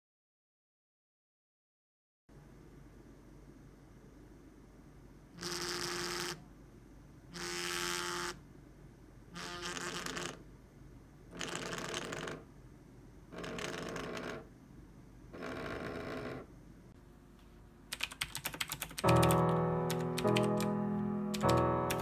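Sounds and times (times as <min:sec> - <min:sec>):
phone vibrating on a table: 0:05.4 - 0:06.4, 0:07.3 - 0:08.4, 0:09.4 - 0:10.4, 0:11.3 - 0:12.5, 0:13.3 - 0:14.5, 0:15.3 - 0:16.5.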